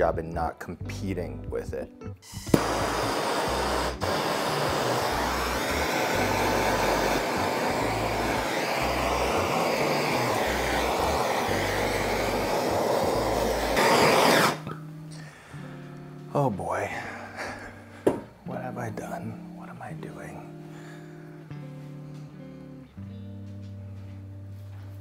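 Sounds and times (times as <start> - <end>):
steady hissing flame: 2.3 - 14.7
blowtorch clicking alight: 2.4 - 14.9.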